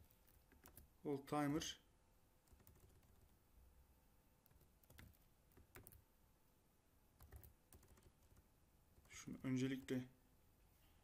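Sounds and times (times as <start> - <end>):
faint keyboard keystrokes: 7.2 - 8.4.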